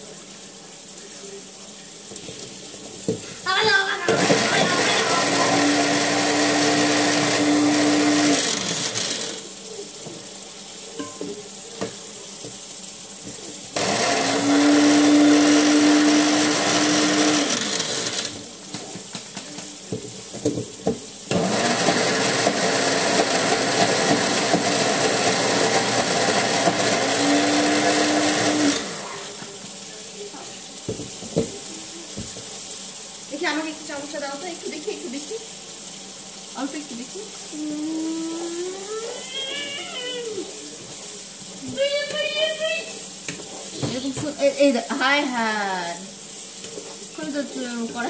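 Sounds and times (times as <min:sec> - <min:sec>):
kitchen appliance motor whining: 0:03.4 - 0:09.8, 0:13.3 - 0:19.9, 0:20.6 - 0:29.7, 0:36.5 - 0:46.1.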